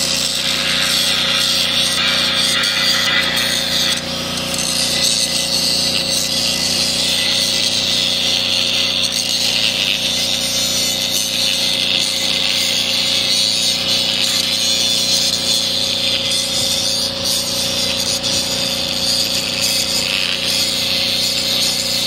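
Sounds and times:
angle grinder grinding steel: 0.0 - 22.0.

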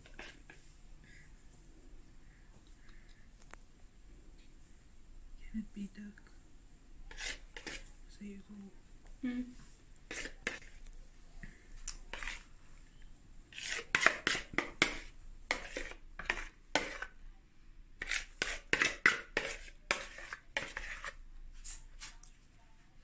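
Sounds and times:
spoon scraping plastic bowl: 0.0 - 0.7, 7.0 - 8.0, 10.0 - 10.9, 11.8 - 17.2, 18.0 - 22.2.

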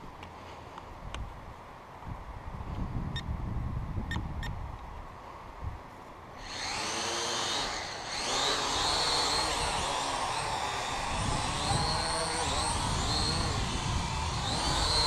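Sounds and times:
quadcopter propellers whining: 6.4 - 15.0.

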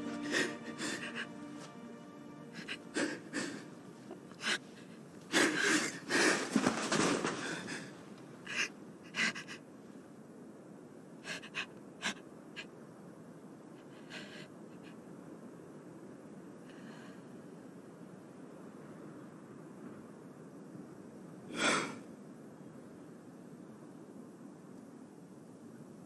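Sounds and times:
woman gasping and wheezing: 2.4 - 6.5.

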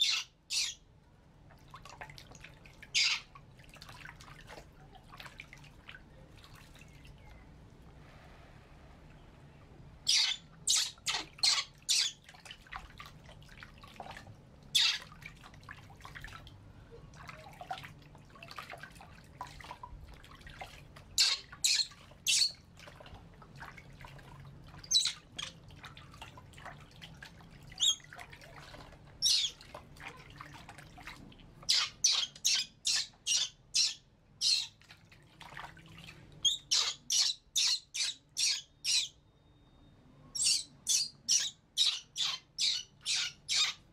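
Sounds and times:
water splashing in a basin: 0.8 - 7.9, 8.7 - 37.1
baby monkeys squealing: 10.1 - 12.1.

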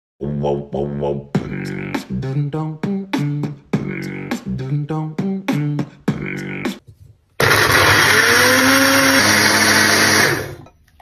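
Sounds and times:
beatbox-style vocal music: 0.2 - 6.9.

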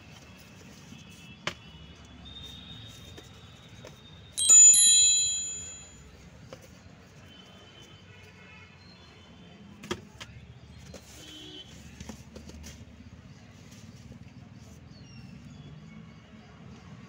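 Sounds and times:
bell-like metallic ring: 4.4 - 6.1.

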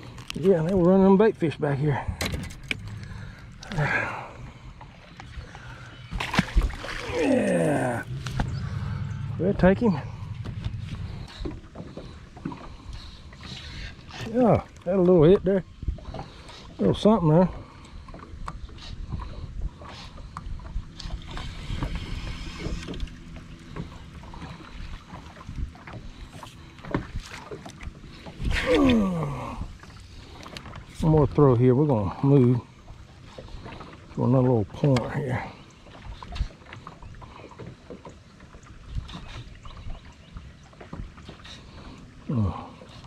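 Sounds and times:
water lapping against boat hull: 0.0 - 43.0
low steady rumble: 1.7 - 14.1
wind rumble on microphone: 8.0 - 13.1, 15.2 - 17.0, 18.3 - 29.8.

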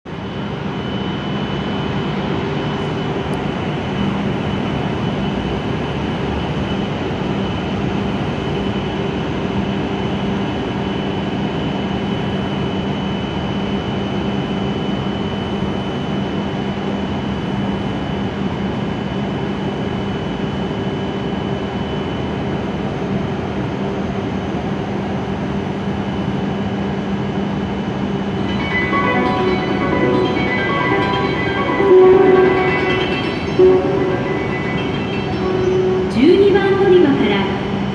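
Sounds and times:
high whine: 27.9 - 37.9
train equipment humming: 28.3 - 37.9.

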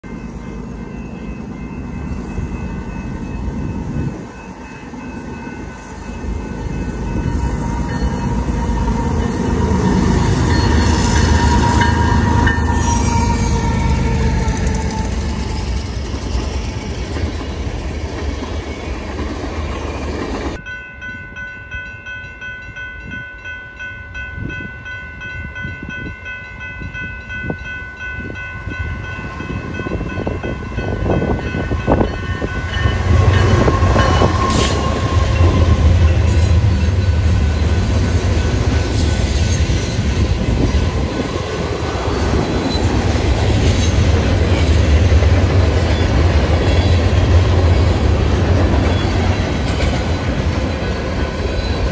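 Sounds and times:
diesel locomotive engine rumble: 0.0 - 22.0, 24.2 - 51.9
train air horn: 7.4 - 15.6, 32.5 - 37.2.

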